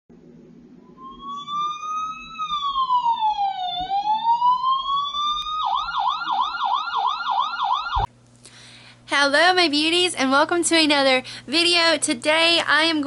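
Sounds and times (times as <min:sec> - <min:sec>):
siren wailing and yelping: 0:00.9 - 0:08.1.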